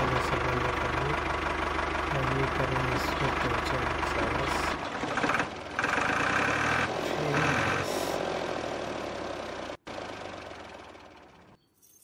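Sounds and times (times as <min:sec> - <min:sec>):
model tractor engine chugging: 0:00.0 - 0:06.6.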